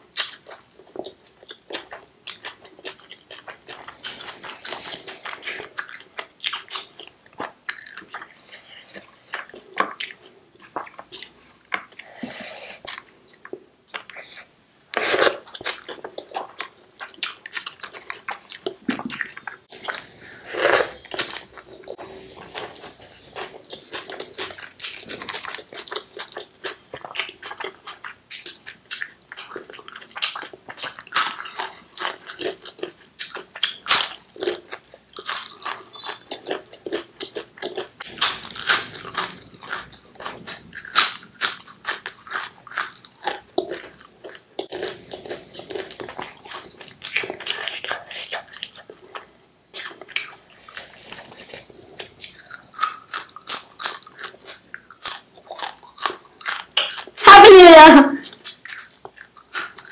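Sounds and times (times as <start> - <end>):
chewing: 0.2 - 57.3, 58.2 - 59.9
crisp food crunching: 12.8 - 57.3, 58.2 - 59.9.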